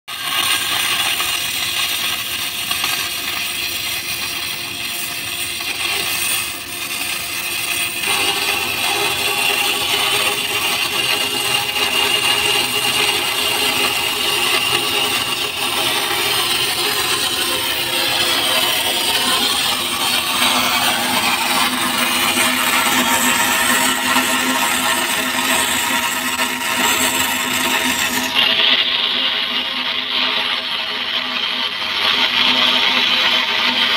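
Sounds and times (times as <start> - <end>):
welding arc crackling: 0.1 - 33.9.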